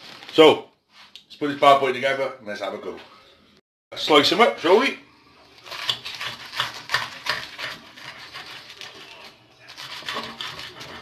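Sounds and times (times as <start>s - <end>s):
knife sawing through crisp toast: 5.6s - 11.0s.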